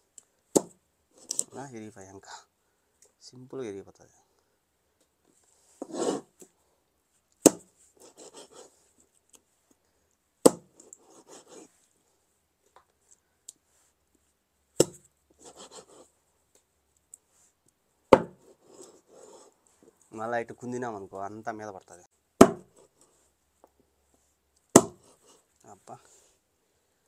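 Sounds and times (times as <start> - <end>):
cleaver chopping through bone: 7.4 - 7.7, 10.5 - 10.7, 14.8 - 15.0, 18.2 - 18.4, 22.4 - 22.7, 24.8 - 25.0.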